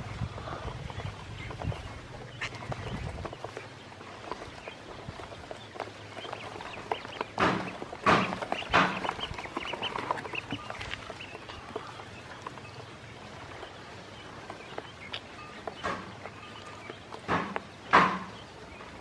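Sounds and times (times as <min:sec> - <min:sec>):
ducklings peeping: 0:00.0 - 0:19.0
water splashes and knocks: 0:05.3 - 0:12.6, 0:14.4 - 0:19.0.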